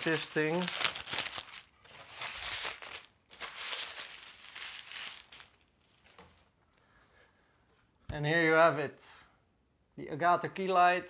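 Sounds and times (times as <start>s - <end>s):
plastic wrapping rustling: 0.0s - 6.6s.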